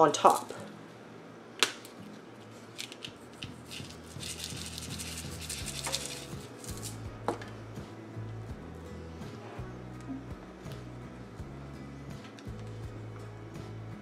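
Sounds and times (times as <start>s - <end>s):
sprinkles rattling in shaker: 2.8s - 7.0s.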